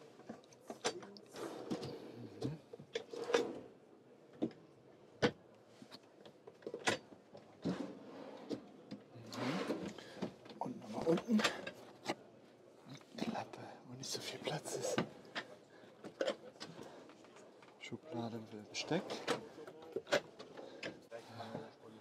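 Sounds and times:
drawers sliding: 0.8 - 2.2, 3.0 - 3.7, 7.6 - 8.7, 9.3 - 11.8, 18.8 - 19.5.

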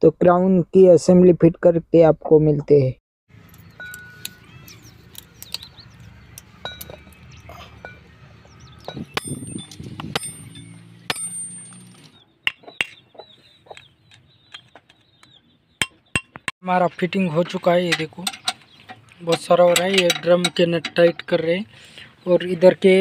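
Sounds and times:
metal tools clinking: 3.3 - 5.6, 6.6 - 8.1, 8.8 - 12.2, 17.5 - 21.6
birds chirping: 3.3 - 23.0.

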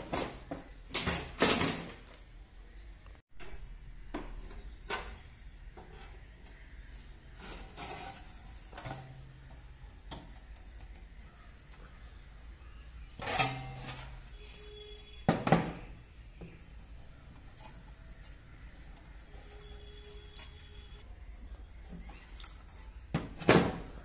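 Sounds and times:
wooden cabinet knocks and clatters: 15.3 - 15.9, 23.1 - 24.0.

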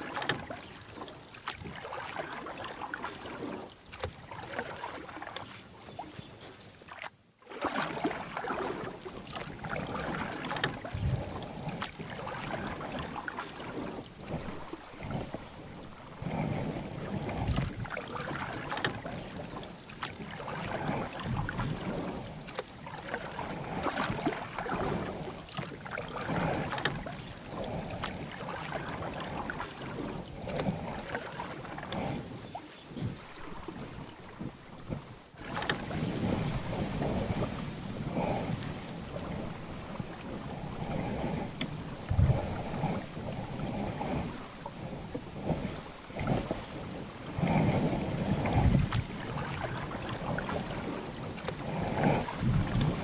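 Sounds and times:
water splashing from paddling: 0.0 - 53.0
wind on microphone: 9.6 - 19.6, 26.3 - 53.0.

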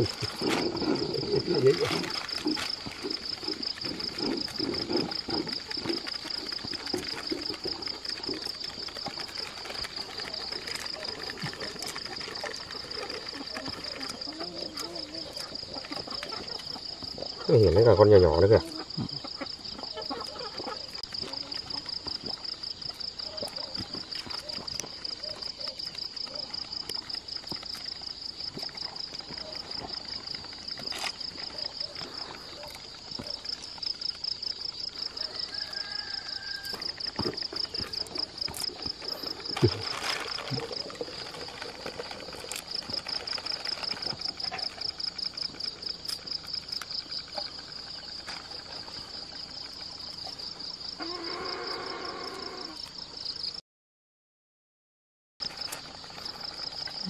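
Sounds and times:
plastic bag rustling: 0.0 - 16.8, 35.6 - 49.1
insects trilling: 0.0 - 53.6, 55.4 - 57.0.

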